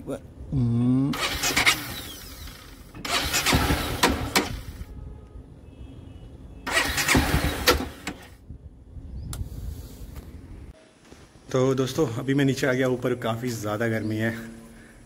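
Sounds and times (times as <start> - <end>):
motorcycle starter cranking: 1.2 - 4.8, 6.7 - 8.4.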